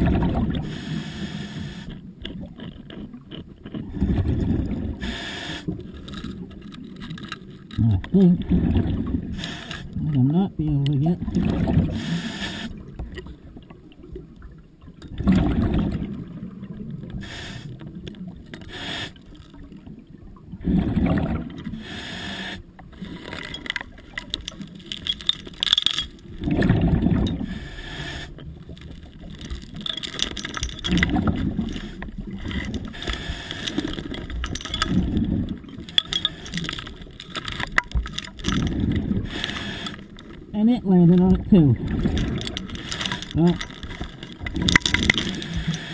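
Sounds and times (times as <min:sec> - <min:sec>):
exhaled bubbles rumbling: 0:00.0 - 0:00.7, 0:02.0 - 0:05.0, 0:07.7 - 0:10.2, 0:11.0 - 0:12.0, 0:12.8 - 0:17.2, 0:19.5 - 0:21.8, 0:22.9 - 0:27.6, 0:28.3 - 0:45.8
scuba regulator breathing: 0:00.6 - 0:02.0, 0:05.0 - 0:06.2, 0:09.3 - 0:10.0, 0:11.9 - 0:12.8, 0:17.1 - 0:18.0, 0:18.6 - 0:19.4, 0:21.7 - 0:26.2, 0:27.2 - 0:35.2, 0:35.8 - 0:40.4, 0:42.4 - 0:44.4, 0:45.1 - 0:45.9.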